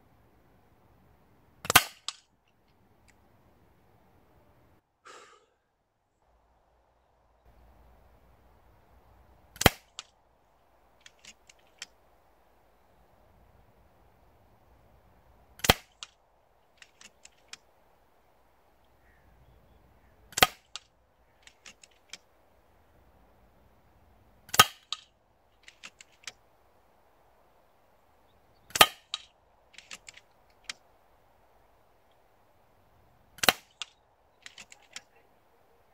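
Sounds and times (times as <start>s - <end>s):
air rifle shots: 1.6s - 2.2s, 9.6s - 10.0s, 15.6s - 16.1s, 20.3s - 20.9s, 24.5s - 25.0s, 28.7s - 30.2s, 33.4s - 34.8s
rifle action clicks: 28.7s - 30.8s, 33.4s - 35.1s.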